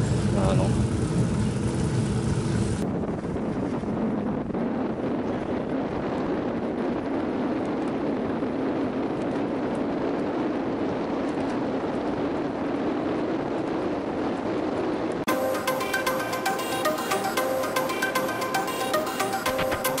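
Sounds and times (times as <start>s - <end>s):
wind noise on microphone: 0.0s - 15.3s
electronic music: 15.3s - 20.0s.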